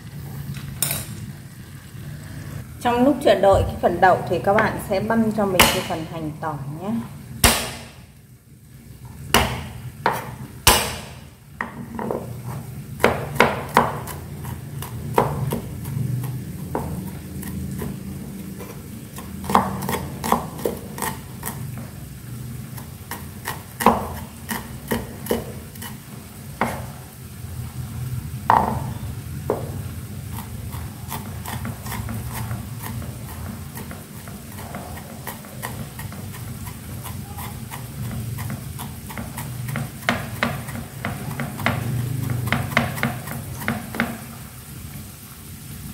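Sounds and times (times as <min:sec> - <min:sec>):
cleaver chopping on wooden board: 0:05.6 - 0:05.9, 0:07.4 - 0:08.0, 0:09.4 - 0:12.1, 0:13.0 - 0:14.2, 0:19.4 - 0:21.6, 0:35.3 - 0:41.9, 0:42.5 - 0:44.2.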